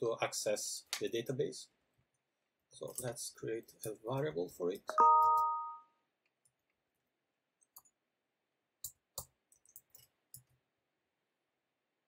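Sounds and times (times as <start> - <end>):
keyboard keys typing: 4.9 - 5.8.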